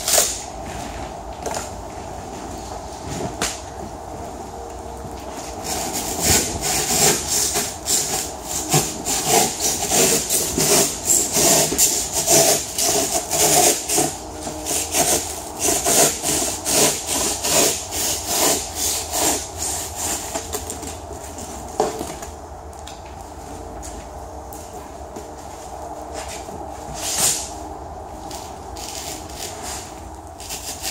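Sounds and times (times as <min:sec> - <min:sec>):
handsaw cutting foam: 0:05.6 - 0:20.5, 0:30.4 - 0:30.9.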